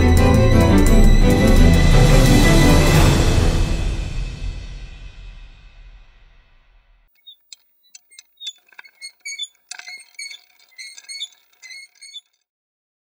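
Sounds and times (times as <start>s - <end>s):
music track: 0.0s - 4.6s
sharp clicks: 7.2s - 12.3s.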